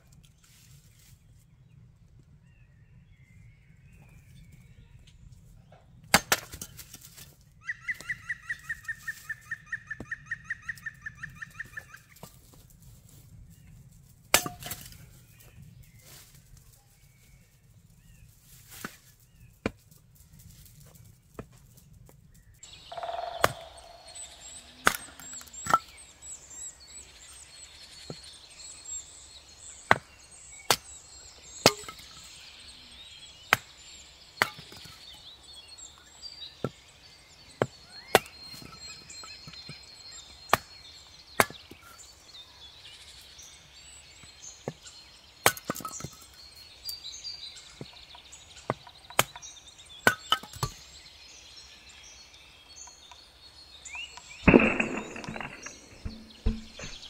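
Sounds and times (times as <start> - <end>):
hatchet chopping wood: 6.1 - 6.9, 14.4 - 14.9, 23.4 - 25.9, 31.7 - 32.1, 34.4 - 34.9, 41.4 - 41.7, 45.5 - 46.0, 54.5 - 57.0.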